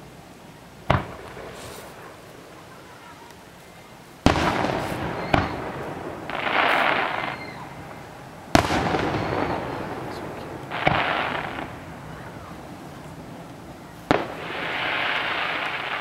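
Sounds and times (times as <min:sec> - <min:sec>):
firework hiss: 0:00.0 - 0:16.0
firework shells bursting: 0:04.2 - 0:16.0.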